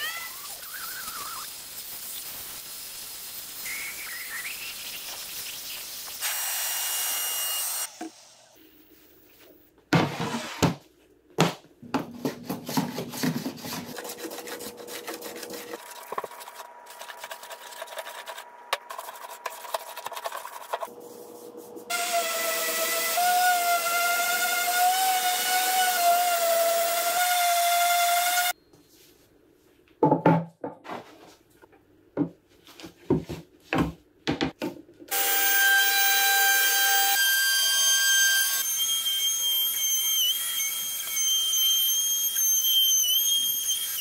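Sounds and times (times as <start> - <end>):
paint sprayer hissing: 0.8 - 6.3
hand plane shaving wood: 12.4 - 20.9.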